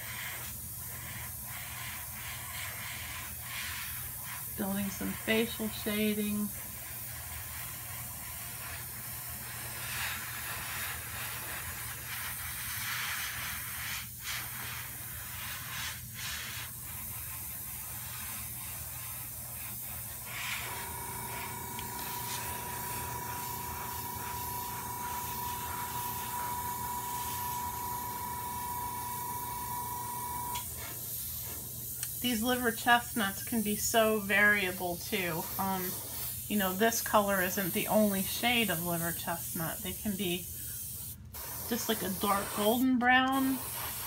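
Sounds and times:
airbrush spraying hiss: 0.0s - 44.0s
steady high whine: 20.6s - 30.6s.

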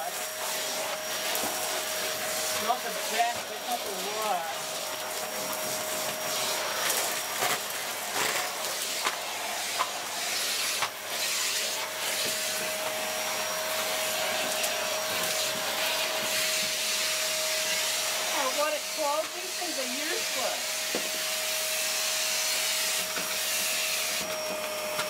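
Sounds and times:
vacuum cleaner whining: 0.0s - 25.0s.

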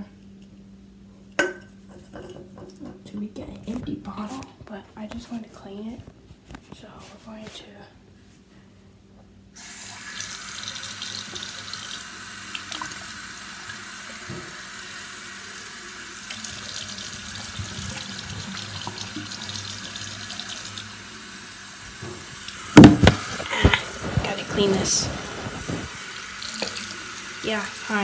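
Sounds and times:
faucet water pouring into can: 9.6s - 21.1s, 25.9s - 28.0s.

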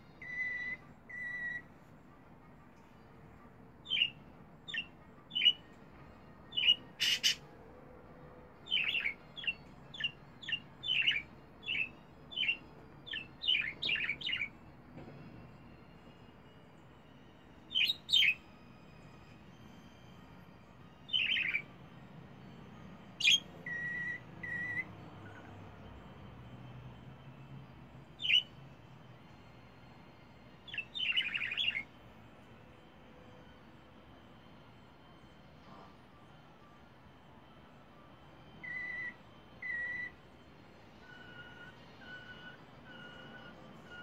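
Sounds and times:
budgerigar chirping: 6.5s - 7.4s.

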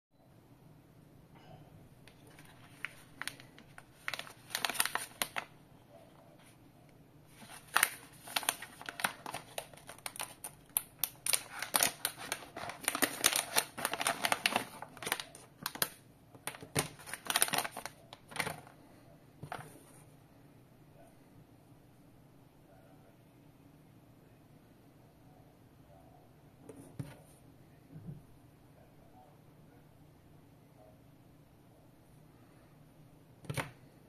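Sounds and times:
plastic bag crinkling: 2.1s - 5.6s, 7.3s - 18.8s.

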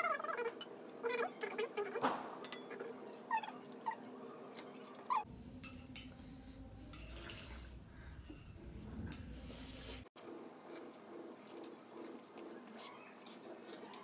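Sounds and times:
spoons clinking against pots: 2.3s - 2.9s, 4.6s - 9.5s.

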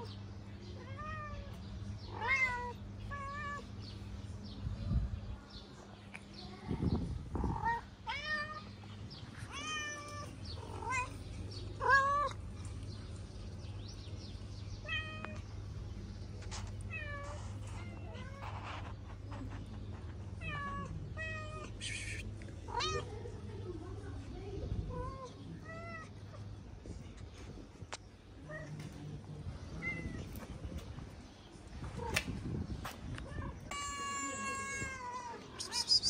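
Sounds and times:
faint low hum: 0.0s - 36.0s
kittens meowing: 33.2s - 36.0s.

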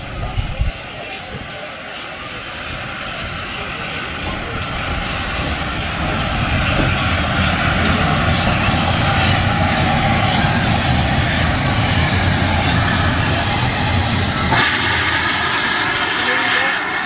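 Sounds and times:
steam locomotive rumble and hiss: 0.0s - 17.0s.

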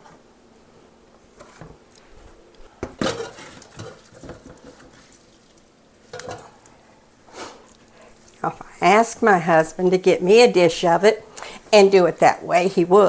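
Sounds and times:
tableware clattering on counter: 2.8s - 4.8s, 6.1s - 6.5s.

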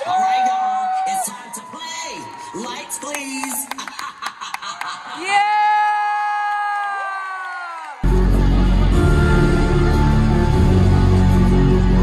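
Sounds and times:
loud music with heavy bass: 8.0s - 12.0s.

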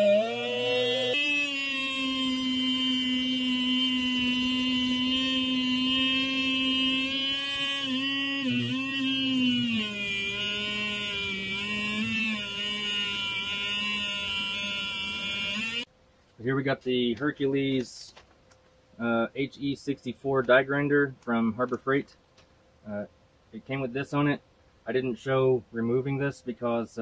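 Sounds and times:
abrasive wheel grinding steel: 0.0s - 15.9s
electric die grinder whining: 0.0s - 15.9s.

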